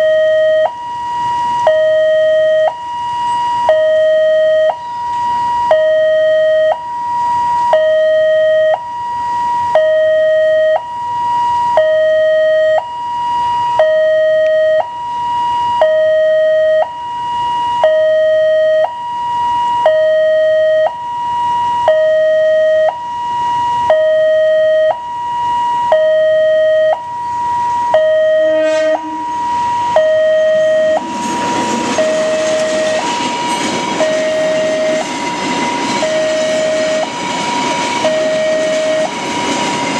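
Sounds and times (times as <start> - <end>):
level crossing two-tone alarm: 0.0 - 39.2
freight train rumble and wheel noise: 27.0 - 39.9.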